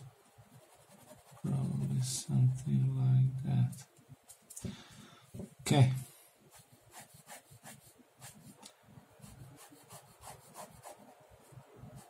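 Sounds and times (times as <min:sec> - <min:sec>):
ballpoint pen scratching on paper: 0:00.5 - 0:01.9, 0:06.5 - 0:08.6, 0:09.2 - 0:11.2.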